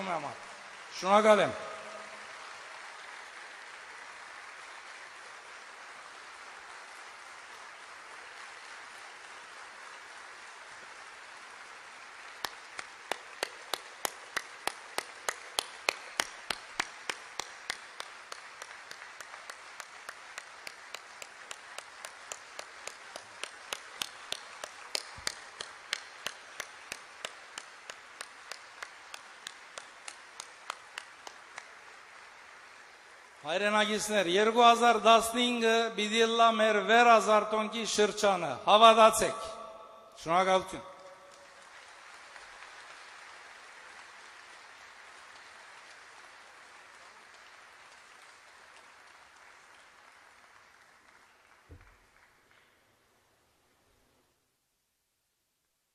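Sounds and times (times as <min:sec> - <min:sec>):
audience applause: 0:00.0 - 0:35.5, 0:40.4 - 0:52.8
rhythmic clapping in unison: 0:00.0 - 0:52.9.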